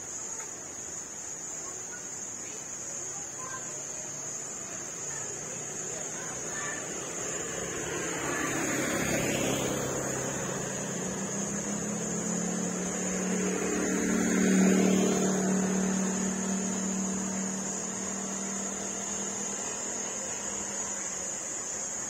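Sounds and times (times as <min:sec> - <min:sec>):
motorbike engine passing: 0:04.6 - 0:22.0.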